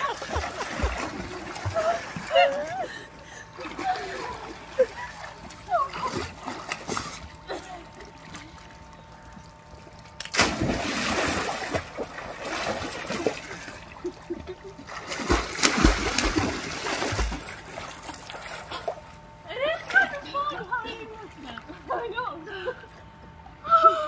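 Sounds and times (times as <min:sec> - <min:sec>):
water splashing in pool: 0:00.0 - 0:02.8, 0:03.6 - 0:19.2.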